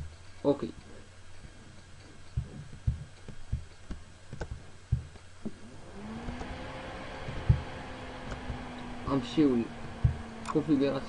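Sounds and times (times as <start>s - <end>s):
soft low thumps: 0.0s - 10.8s
low electrical hum: 0.0s - 11.0s
sharp clicks: 9.8s - 10.6s.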